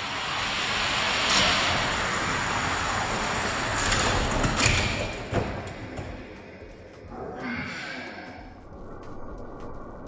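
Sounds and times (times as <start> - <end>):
toy cars rolling on plastic track: 0.3 - 5.2.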